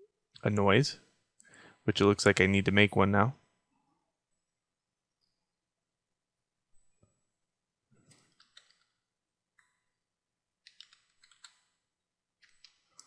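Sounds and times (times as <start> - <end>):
keyboard and mouse clicks: 8.0 - 9.0, 10.6 - 11.8, 12.4 - 13.0.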